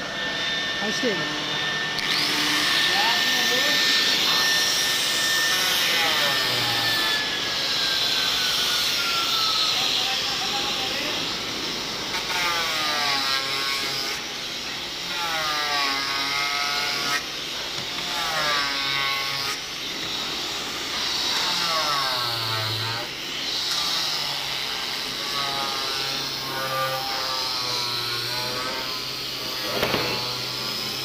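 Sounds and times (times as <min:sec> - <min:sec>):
electric sander motor whine: 0:00.0 - 0:12.6.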